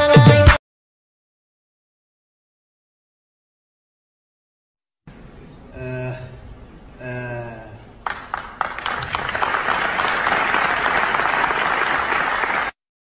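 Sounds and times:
group applauding: 0:08.0 - 0:12.8.

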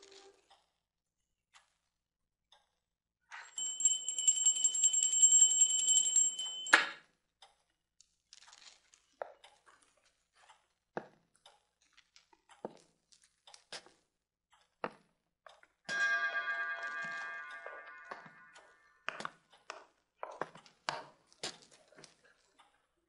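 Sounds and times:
bell ringing rapidly: 0:03.5 - 0:06.9, 0:15.9 - 0:18.8.

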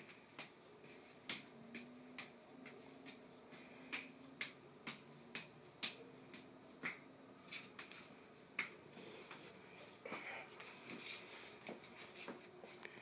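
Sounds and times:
high cricket trill: 0:00.0 - 0:13.0
juggling balls slapping into hands: 0:00.1 - 0:09.4.

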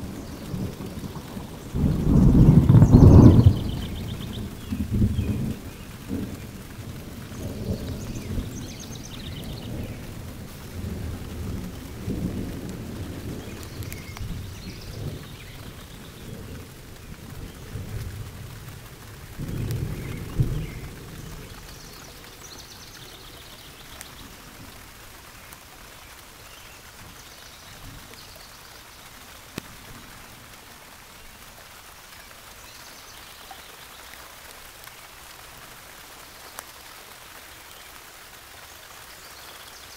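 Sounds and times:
thunder rumbling: 0:00.0 - 0:25.2
steady rain: 0:00.0 - 0:39.9.

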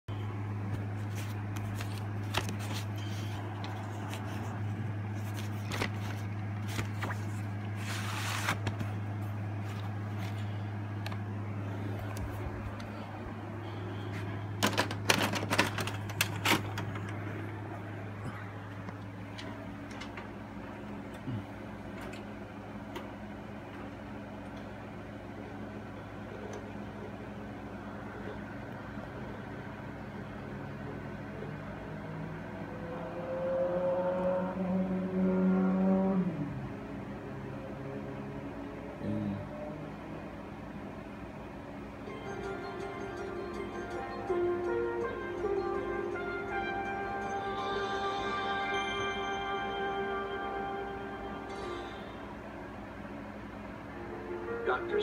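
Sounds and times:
low hum: 0:00.1 - 0:54.9
cassette scraping out of case: 0:05.2 - 0:08.9.

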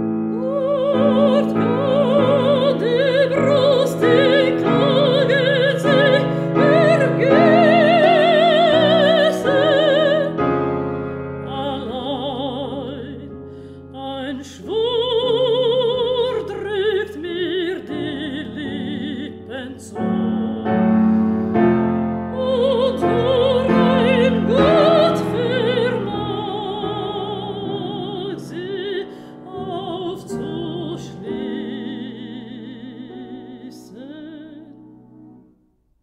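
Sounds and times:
piano accompaniment: 0:00.0 - 0:35.8
woman singing with vibrato: 0:00.3 - 0:10.7, 0:11.4 - 0:34.8.

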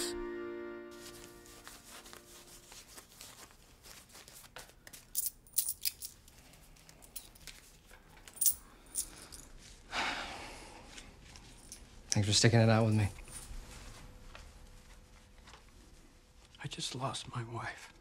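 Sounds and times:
soft paper rustle: 0:01.0 - 0:05.2.

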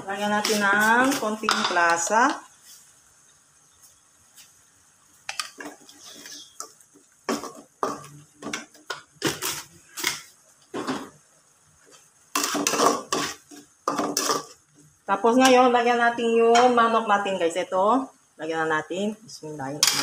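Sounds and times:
metal utensils scraping a wok: 0:00.2 - 0:02.8, 0:05.3 - 0:06.7, 0:12.3 - 0:14.6, 0:19.8 - 0:20.0.

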